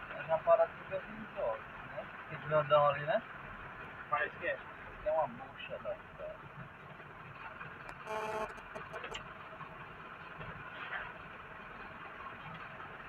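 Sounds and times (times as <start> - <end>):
car engine and tyres rumbling: 0.0 - 13.0
short flat beep: 7.9 - 9.2.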